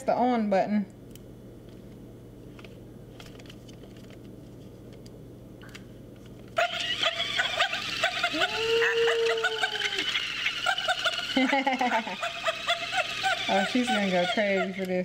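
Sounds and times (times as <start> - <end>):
toy speaker dog barks: 6.6 - 11.4, 12.1 - 14.8.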